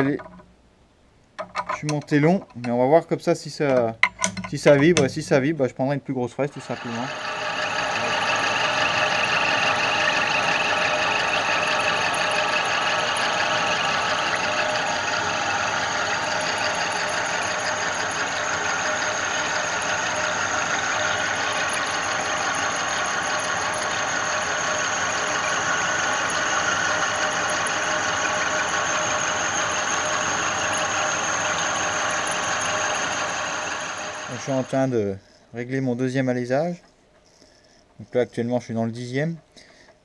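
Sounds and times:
milling machine cutting metal: 0:06.4 - 0:34.8.

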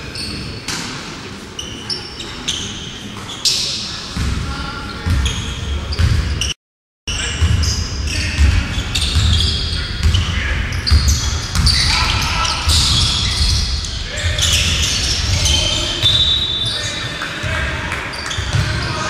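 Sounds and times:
sneakers squeaking: 0:00.0 - 0:00.9, 0:01.5 - 0:19.0
voices calling out: 0:01.3 - 0:19.0
basketball bouncing on court: 0:04.2 - 0:06.5, 0:07.2 - 0:19.0.

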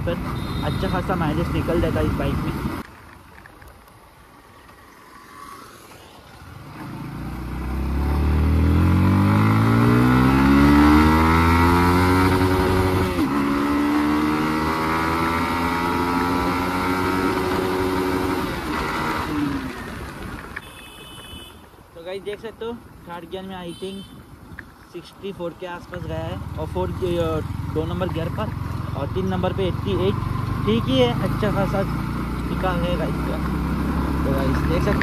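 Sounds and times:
motorcycle engine accelerating hard: 0:06.6 - 0:20.4, 0:26.4 - 0:35.0.

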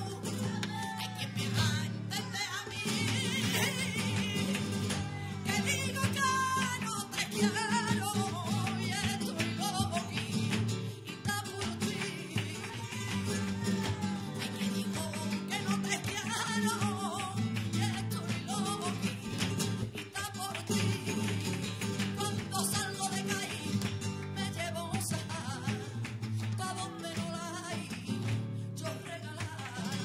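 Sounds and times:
person singing: 0:00.0 - 0:10.5, 0:11.1 - 0:19.1
flamenco guitar strumming: 0:00.0 - 0:30.0.

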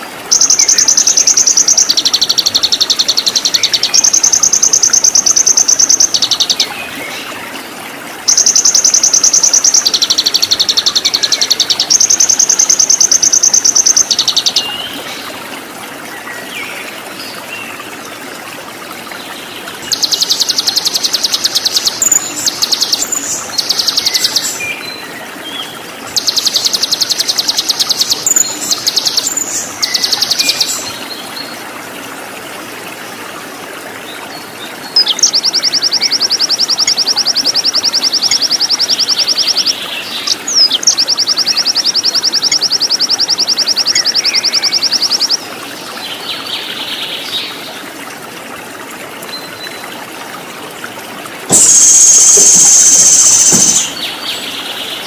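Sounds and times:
running water: 0:00.0 - 0:55.0
songbird trilling: 0:08.3 - 0:14.8, 0:51.5 - 0:54.1.

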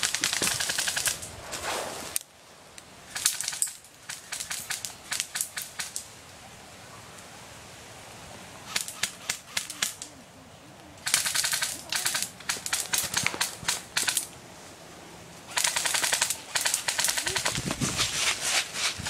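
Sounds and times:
airsoft guns firing: 0:00.0 - 0:01.2, 0:11.0 - 0:14.3, 0:15.5 - 0:17.6.

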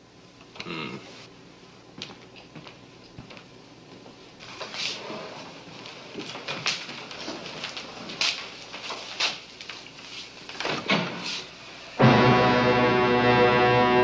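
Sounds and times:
brass music sting: 0:12.0 - 0:14.0.

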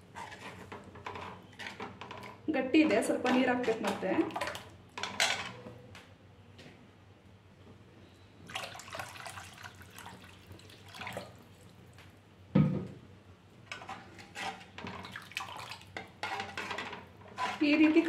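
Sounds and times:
soup sloshing and splashing: 0:04.2 - 0:04.8, 0:08.5 - 0:11.9, 0:14.5 - 0:18.0
water pouring: 0:08.5 - 0:11.8, 0:14.9 - 0:16.0.

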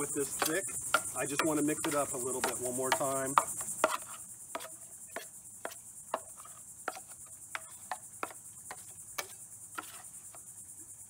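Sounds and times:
high insect trill: 0:00.0 - 0:11.0.

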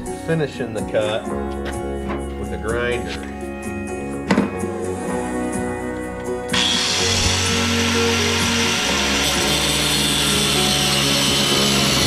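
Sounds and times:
angle grinder cutting steel: 0:06.5 - 0:12.0.

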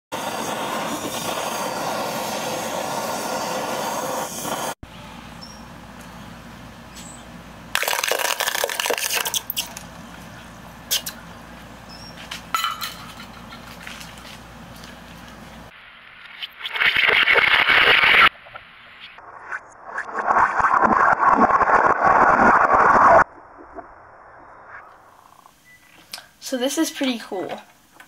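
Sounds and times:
gas torch flame hissing: 0:00.2 - 0:04.8
molten lead sizzling in water: 0:00.2 - 0:04.8.

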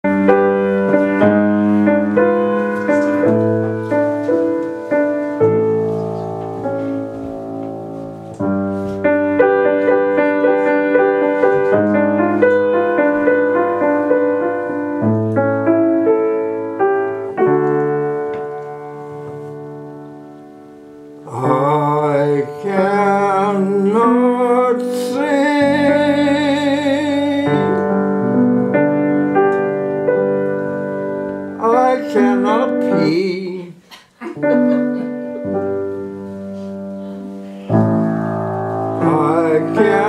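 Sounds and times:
grand piano chords: 0:00.0 - 0:40.0.

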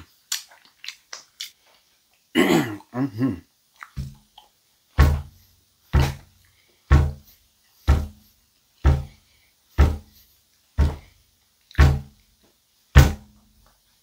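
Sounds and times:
person chewing with lip smacks: 0:00.0 - 0:03.0, 0:03.7 - 0:04.6.

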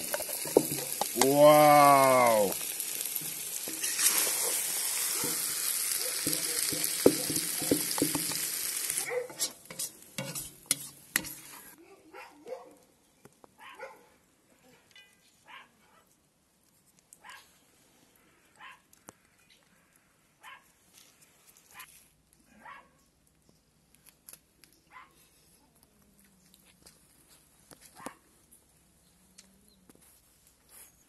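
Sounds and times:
metal ladle scraping and clinking: 0:00.0 - 0:01.2, 0:03.2 - 0:11.8
noodles sizzling in a pot: 0:00.0 - 0:11.8.

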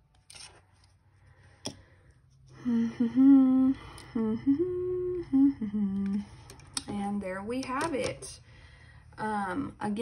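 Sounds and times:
woman humming: 0:02.6 - 0:06.5.

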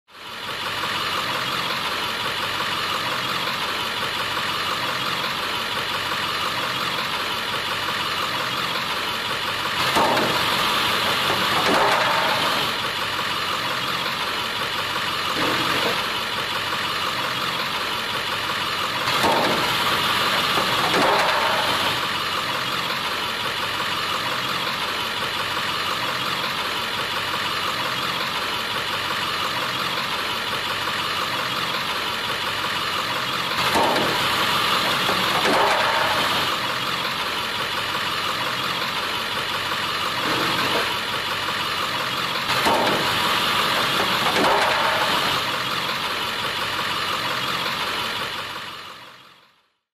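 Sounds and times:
truck engine idling: 0:00.0 - 0:49.9
truck driving over plastic pans: 0:09.8 - 0:12.9, 0:33.5 - 0:37.0, 0:42.5 - 0:45.9.

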